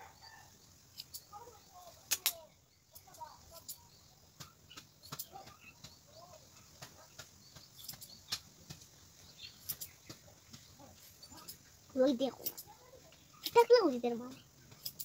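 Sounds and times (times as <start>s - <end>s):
scissors snipping hair: 0.9s - 1.3s, 2.1s - 2.4s, 12.4s - 12.8s, 14.8s - 15.0s.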